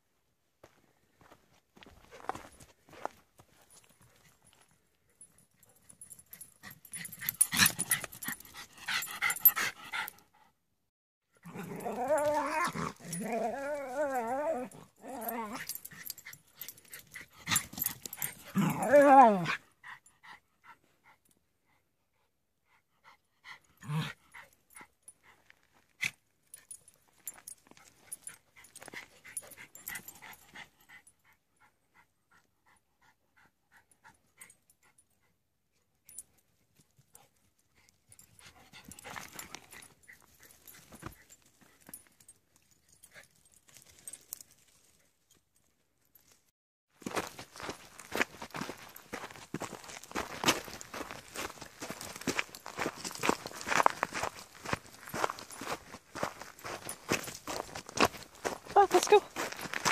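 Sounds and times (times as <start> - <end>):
dog growling: 11.4 - 15.7, 18.5 - 19.6.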